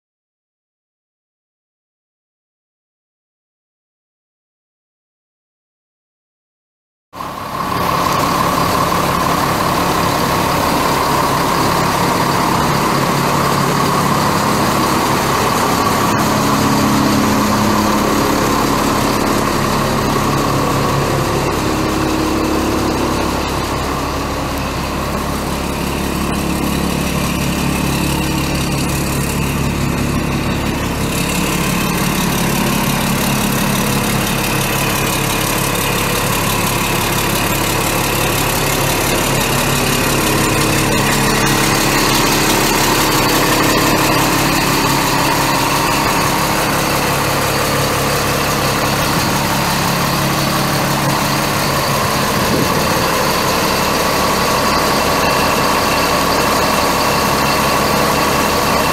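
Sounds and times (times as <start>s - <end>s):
dump truck diesel engine idling: 7.2s - 58.9s.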